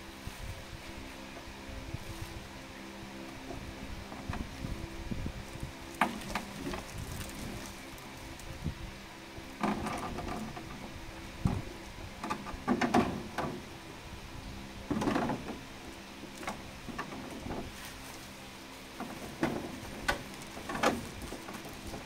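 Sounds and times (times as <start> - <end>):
faint steady hum: 0.0 - 22.0
plastic wrapping crinkling: 5.9 - 8.5.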